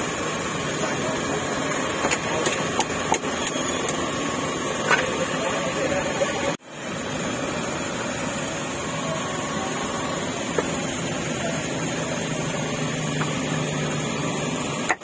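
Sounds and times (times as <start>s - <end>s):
heavy rain hissing: 3.7s - 14.8s.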